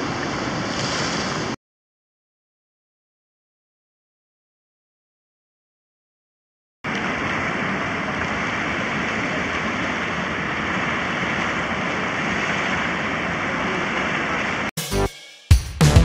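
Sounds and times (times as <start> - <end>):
river rushing in flood: 0.0 - 1.6, 6.9 - 14.7.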